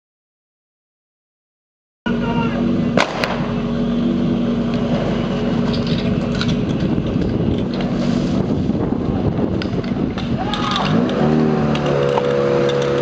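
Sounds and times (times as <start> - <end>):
pump petrol engine running: 2.1 - 13.0
starting pistol shots: 3.0 - 3.5.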